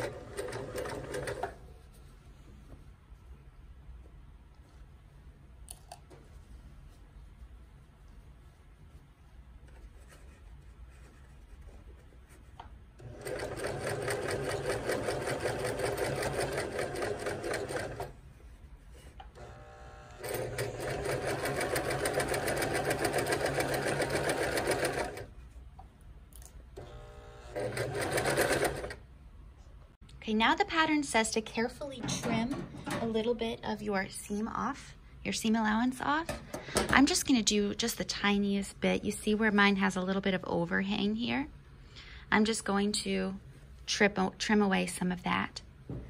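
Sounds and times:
sewing machine stitching: 0.0s - 1.6s, 13.0s - 18.2s, 19.4s - 25.3s, 26.8s - 29.0s.

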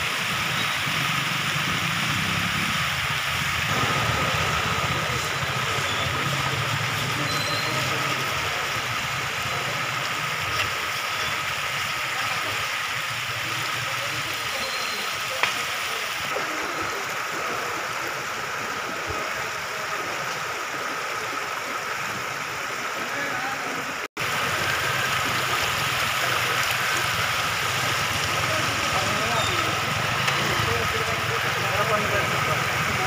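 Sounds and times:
floodwater rushing across street: 0.0s - 33.0s.

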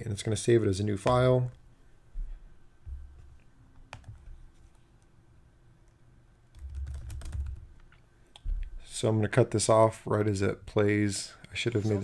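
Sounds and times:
computer keyboard typing: 3.9s - 4.3s, 6.5s - 8.4s.

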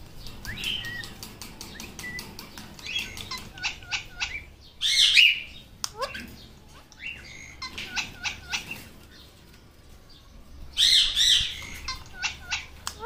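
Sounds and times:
rapid sharp clicks: 0.2s - 3.5s
parakeet chirping: 0.2s - 9.3s, 10.7s - 13.0s
parakeet squawk: 2.8s - 8.9s, 10.8s - 13.0s.

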